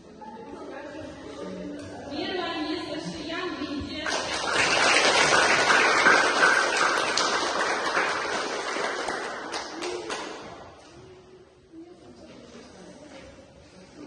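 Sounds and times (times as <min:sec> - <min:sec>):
people applauding: 0:04.0 - 0:10.8.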